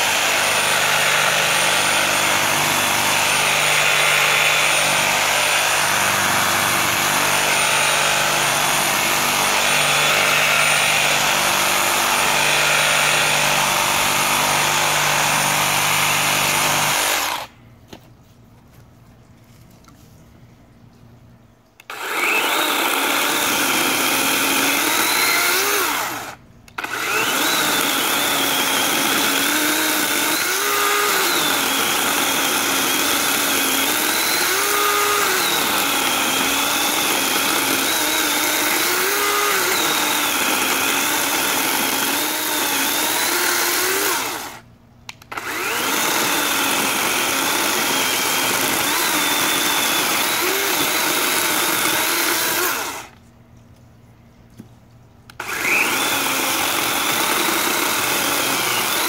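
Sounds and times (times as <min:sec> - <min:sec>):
chainsaw cutting log: 0:00.0 - 0:17.5, 0:21.8 - 0:53.2, 0:55.3 - 0:59.0.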